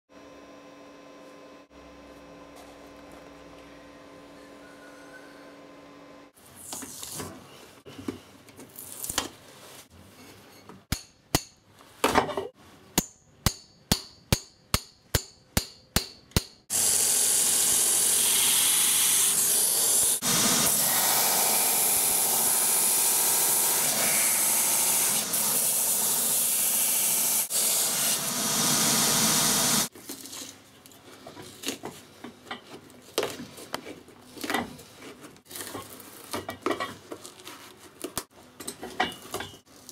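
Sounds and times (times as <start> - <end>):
sanding wheel grinding: 16.7 - 29.9.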